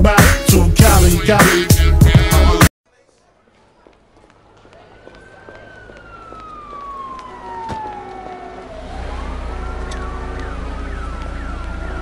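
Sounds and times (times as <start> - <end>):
deep bass: 0.0 - 2.7
siren wail: 4.8 - 12.0.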